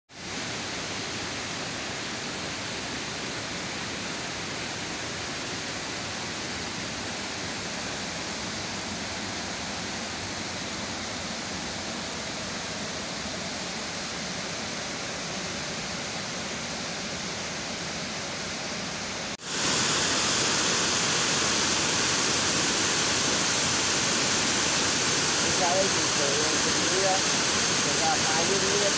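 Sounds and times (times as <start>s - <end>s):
river water pouring over a weir: 0.2s - 28.9s.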